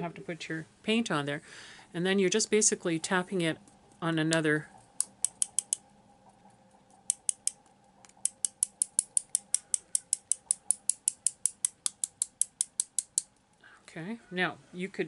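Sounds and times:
brush tapping on plastic stick: 7.1 - 13.3.

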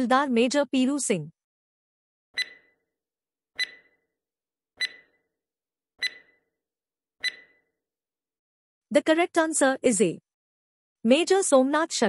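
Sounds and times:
short clear timer pings: 2.4 - 2.7, 3.6 - 4.0, 4.8 - 5.2, 6.0 - 6.4, 7.2 - 7.6.

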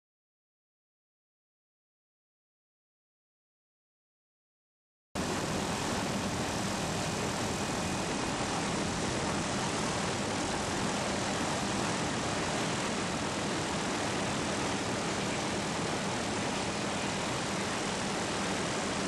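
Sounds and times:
aircraft engine running: 5.2 - 19.0.

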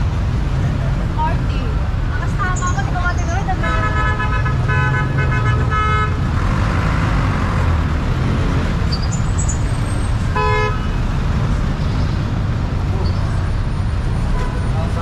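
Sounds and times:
street traffic: 0.0 - 15.0
vehicle horn: 3.6 - 6.2, 10.3 - 11.0, 14.2 - 14.8.

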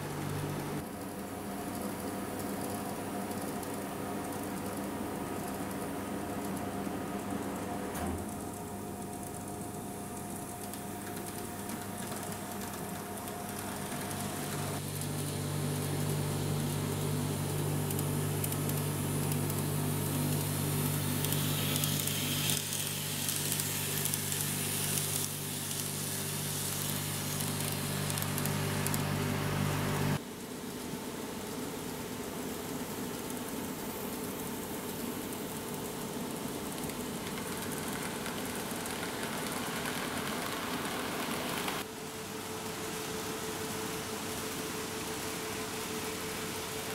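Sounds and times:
model train motor hum: 13.5 - 30.2.

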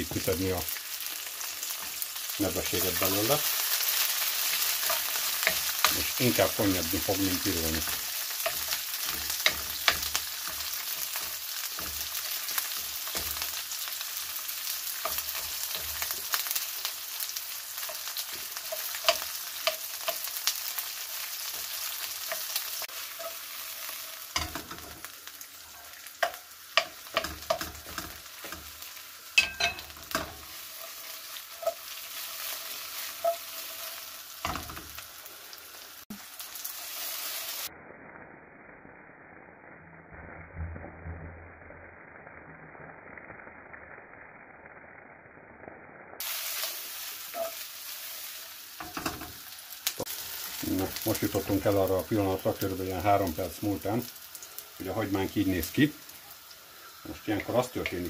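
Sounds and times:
onions sizzling in hot oil: 0.0 - 58.0
wooden spoon scraping a pan: 14.8 - 35.0, 46.3 - 49.4.

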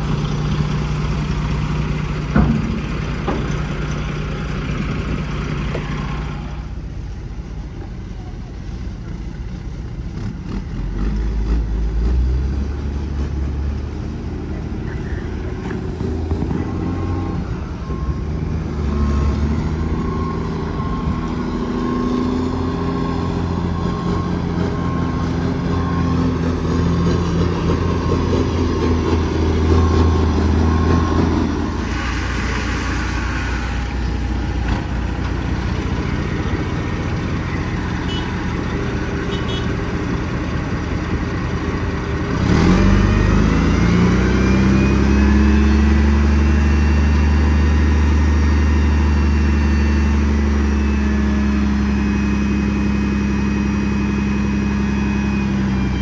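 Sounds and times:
diesel truck engine: 0.0 - 56.0.

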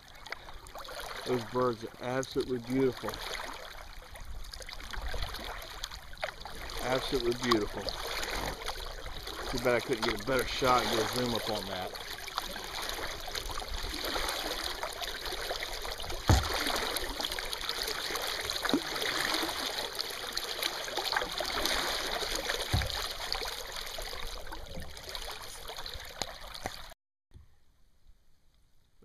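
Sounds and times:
water trickling and dripping: 0.0 - 27.0
dull knocks on kayak: 16.2 - 16.8, 22.6 - 23.2.

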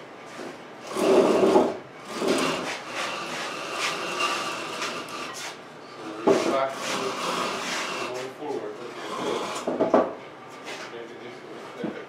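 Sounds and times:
car body scraping on wooden stand: 0.9 - 5.6.

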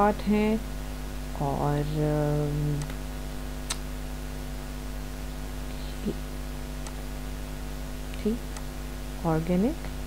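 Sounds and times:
electrical mains hum: 0.0 - 10.0.

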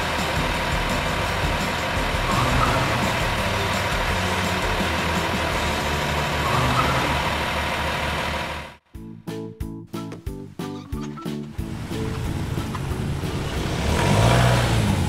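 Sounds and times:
light plucked music notes: 0.0 - 7.6, 9.0 - 15.0
heavy construction vehicle engine: 0.0 - 8.9, 11.0 - 15.0.

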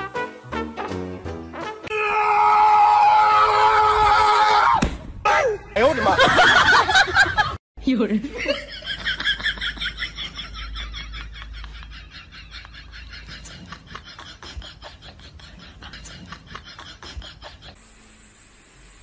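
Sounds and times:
person giggling: 8.4 - 17.8.

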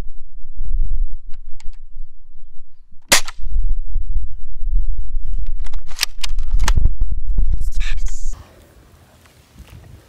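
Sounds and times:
low rumble: 0.0 - 8.4
rifle shot: 3.1 - 3.5.

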